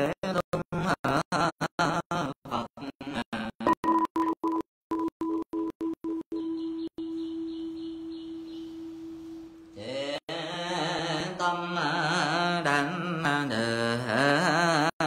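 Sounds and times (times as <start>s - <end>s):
person chanting melodically: 7.0s - 15.0s.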